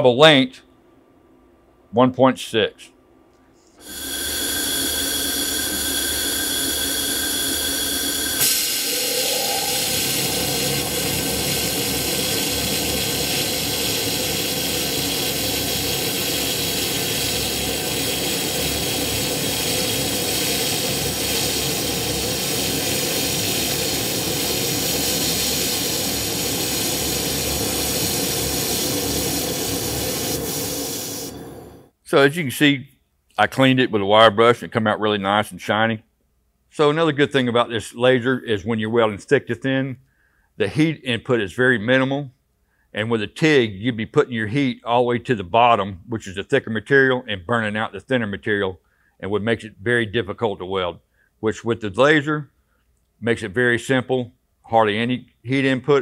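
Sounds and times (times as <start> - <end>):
laser welder hissing: 3.8 - 31.9
low hum: 3.9 - 12.9.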